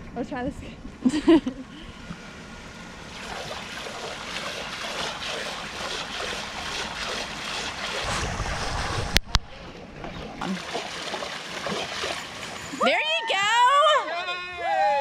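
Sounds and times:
water splashing and churning: 3.0s - 12.9s.

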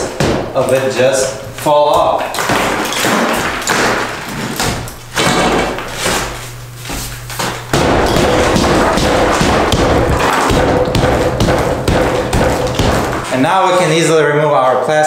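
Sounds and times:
hammer knocking on plaster wall: 7.7s - 13.3s.

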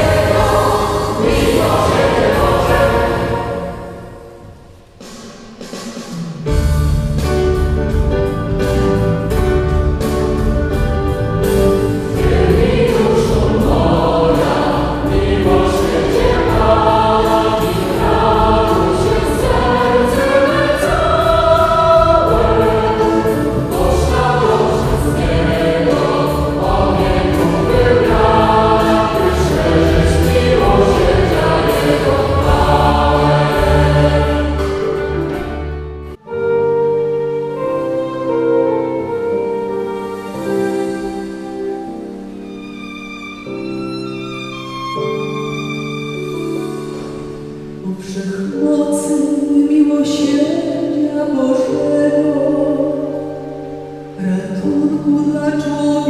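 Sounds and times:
choir singing amplified: 0.0s - 5.7s, 11.4s - 36.0s
band with bass line: 6.4s - 36.2s.

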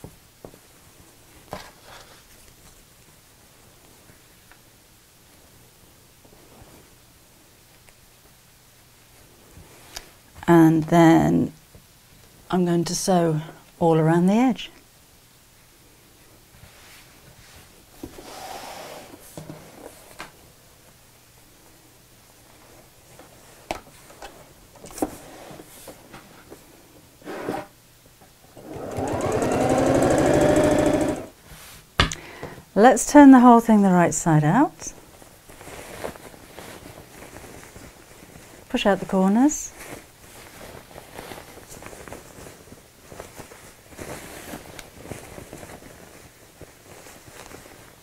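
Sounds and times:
sewing machine stitching: 28.6s - 31.3s
fabric rustling: 28.6s - 31.9s, 35.0s - 48.0s.

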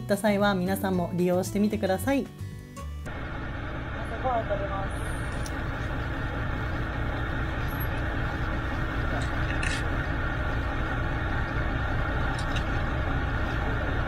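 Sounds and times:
boat engine rumbling: 3.1s - 14.0s.

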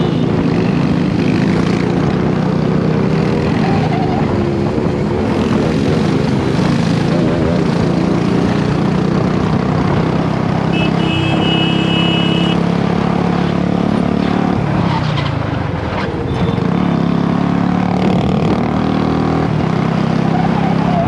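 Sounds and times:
wind rushing over microphone: 0.0s - 10.5s
motorcycle engine running hard: 0.0s - 21.0s.

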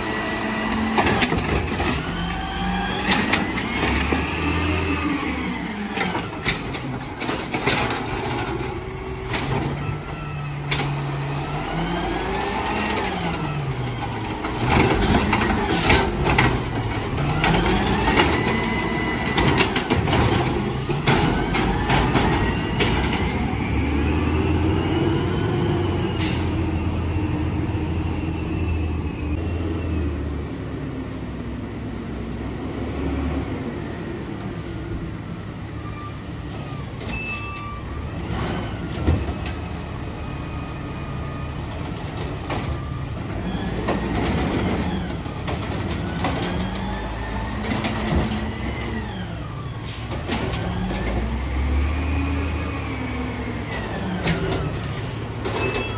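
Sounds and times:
garbage truck engine revving: 0.0s - 29.7s, 41.8s - 55.9s.

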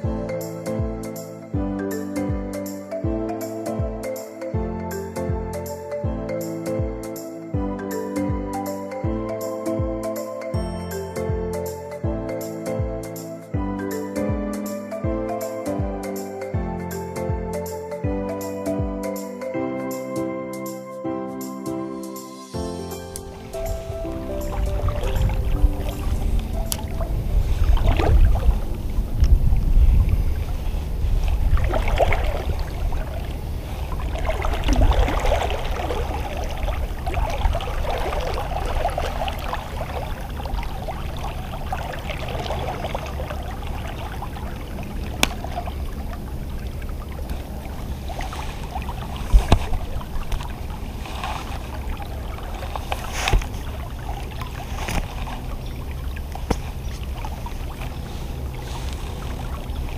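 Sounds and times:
low wind rumble on microphone: 22.6s - 59.9s
river water sloshing and gurgling: 22.9s - 59.9s.

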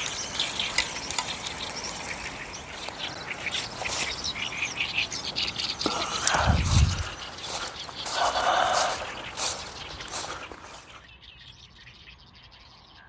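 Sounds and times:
high-pitched insect trill: 0.0s - 11.0s
birds chirping: 0.0s - 13.0s.

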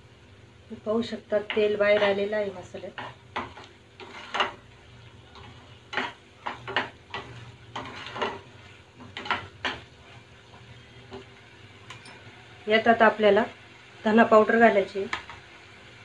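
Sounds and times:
spatula scraping masala in pan: 1.4s - 12.0s.

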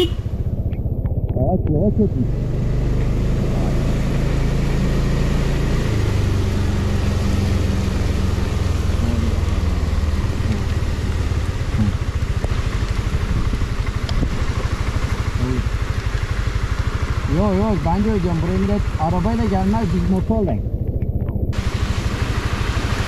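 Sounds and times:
wind rumble on microphone: 0.0s - 2.3s, 8.9s - 16.3s, 18.9s - 21.7s
scooter engine drone: 0.0s - 23.0s.

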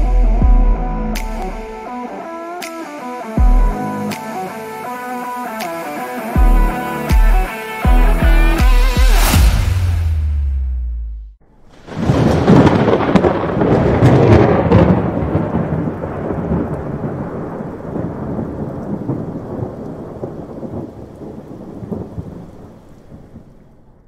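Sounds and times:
thunder clap and rumble: 11.5s - 24.0s.

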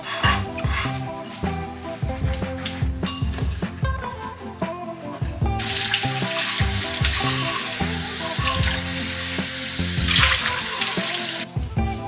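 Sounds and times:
background music: 0.0s - 12.0s
tap water splashing in sink: 5.6s - 11.4s.

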